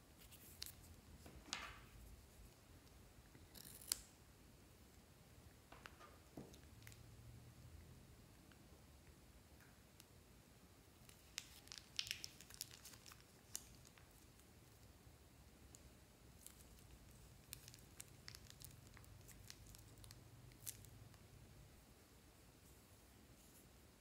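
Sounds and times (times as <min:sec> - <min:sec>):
plastic bag crinkling: 0:11.1 - 0:14.2.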